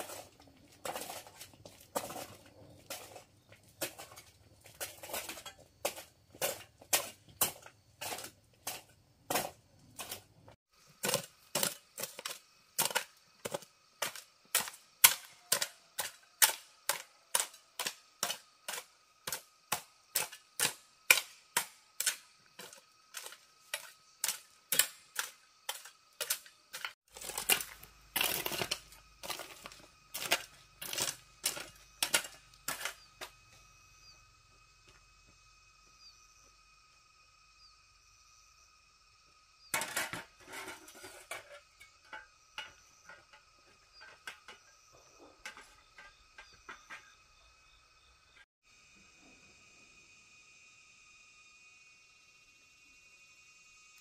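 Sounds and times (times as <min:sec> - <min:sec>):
faint steady tone: 0:28.7 - 0:54.0.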